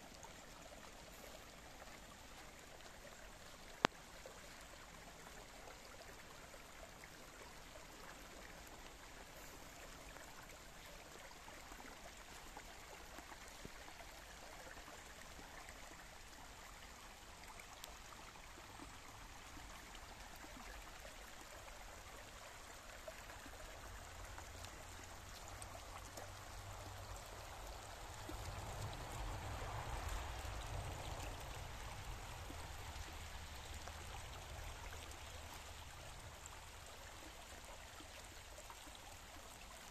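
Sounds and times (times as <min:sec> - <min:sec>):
brook babbling over stones: 0:00.0 - 0:39.9.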